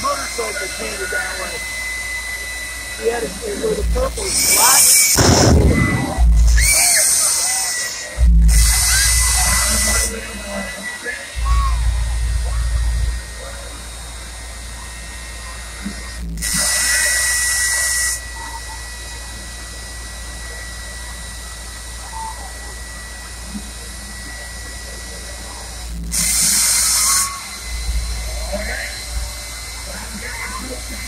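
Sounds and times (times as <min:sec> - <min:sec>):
turbine engine whine and hiss: 0:00.0 - 0:31.0
deep rumble of flame: 0:05.1 - 0:07.0, 0:11.4 - 0:16.4.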